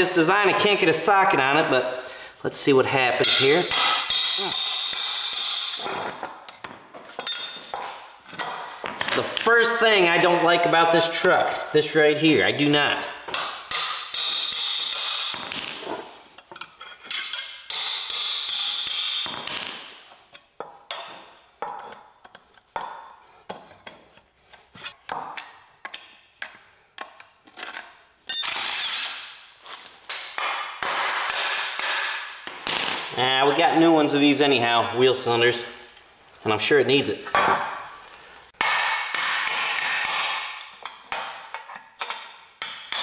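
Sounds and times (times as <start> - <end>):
hammer striking wrench: 3.2 - 5.9, 13.3 - 15.7, 16.5 - 19.8.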